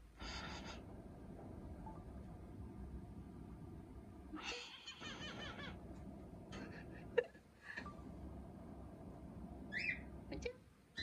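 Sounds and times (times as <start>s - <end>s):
parrot imitating laughter: 4.4s - 5.8s
bird chirps: 9.7s - 10.1s.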